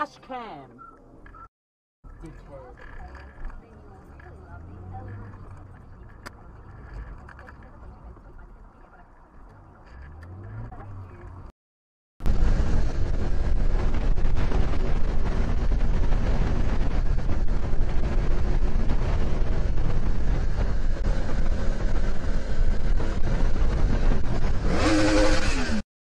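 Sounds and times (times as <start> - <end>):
motorcycle engine: 12.2 - 25.8
wind rushing over microphone: 12.2 - 25.8.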